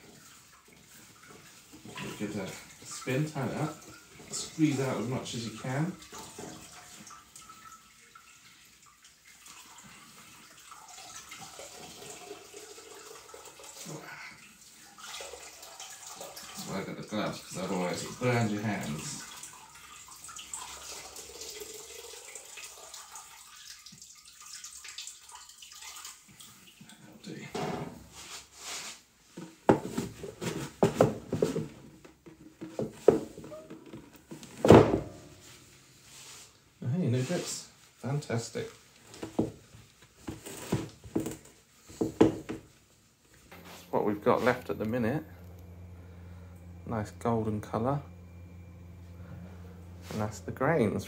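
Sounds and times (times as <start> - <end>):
wet squelches and splashes: 6.0 - 16.7, 19.1 - 27.0
loud thump: 34.6 - 35.2.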